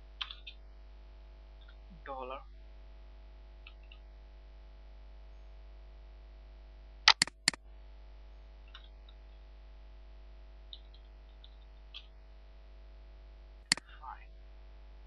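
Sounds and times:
faint steady hum: 0.0s - 15.0s
computer mouse clicks: 7.1s - 7.6s
faint ticks: 10.7s - 12.2s.

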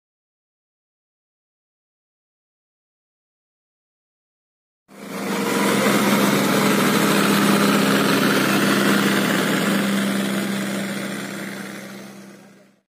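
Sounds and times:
tractor diesel engines droning: 4.9s - 12.8s.

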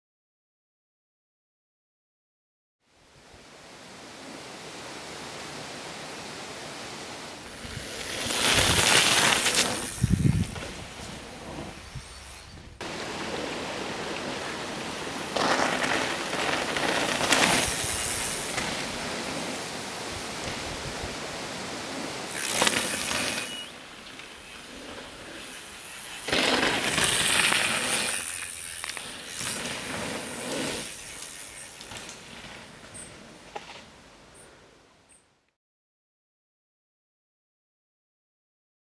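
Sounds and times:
steady hiss: 3.1s - 34.4s
bike rattling: 7.4s - 20.6s, 22.1s - 33.9s
bike tyres crunching on gravel: 7.4s - 34.1s.

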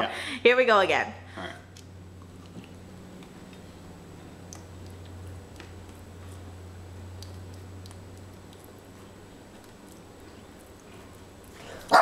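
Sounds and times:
steady low hum: 0.0s - 12.0s
muffin eating clicks: 7.1s - 9.0s.

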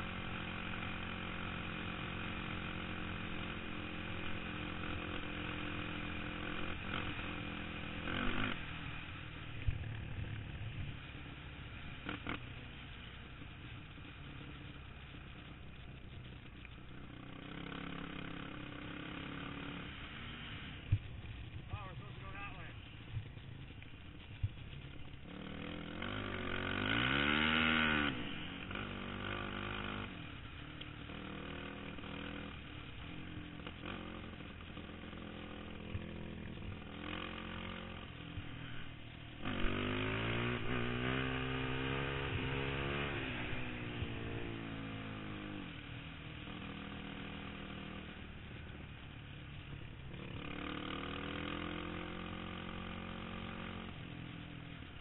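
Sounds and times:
quad engine at speed: 0.0s - 55.0s.

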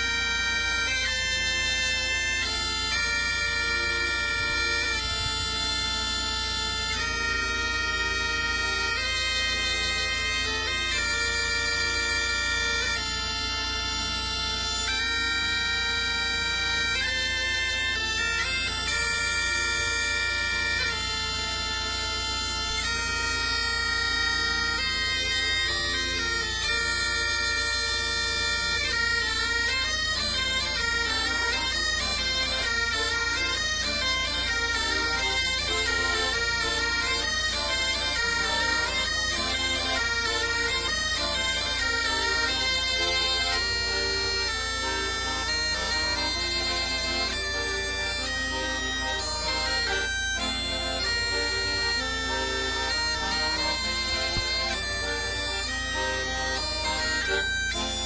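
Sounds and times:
bagpipe music: 0.0s - 58.0s.

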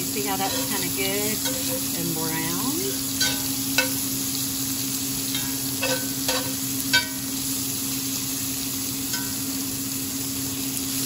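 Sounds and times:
steak sizzling in a skillet: 0.0s - 11.0s
metal spatula clinking on pan: 0.4s - 1.9s, 3.2s - 4.0s, 5.3s - 7.2s, 9.1s - 9.4s.

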